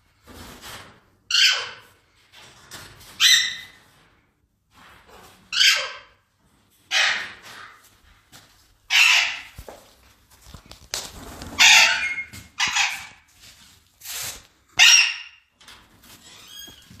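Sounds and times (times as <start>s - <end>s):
parakeets screeching: 1.3s - 1.8s, 3.2s - 3.8s, 5.5s - 6.1s, 6.9s - 7.4s, 8.9s - 9.6s, 11.5s - 13.2s, 14.8s - 15.4s.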